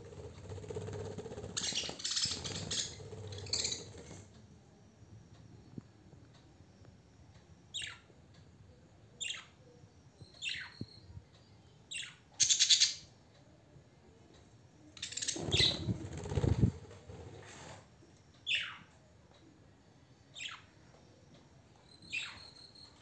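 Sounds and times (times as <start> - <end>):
parakeet calling: 1.5 - 4.0.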